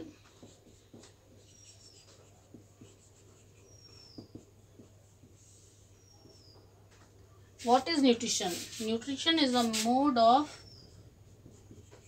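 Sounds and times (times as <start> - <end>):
marker pen writing on whiteboard: 0.0 - 10.0, 10.6 - 12.0
marker squeaks: 0.2 - 6.7.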